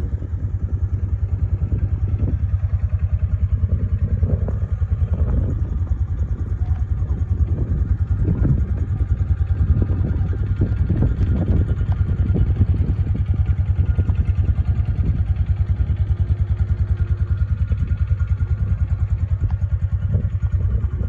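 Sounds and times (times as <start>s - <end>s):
utility vehicle engine idling: 0.0s - 21.0s.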